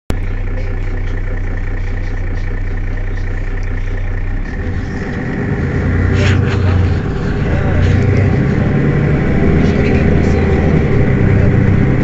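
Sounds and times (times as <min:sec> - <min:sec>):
bus engine idling: 0:00.1 - 0:12.0.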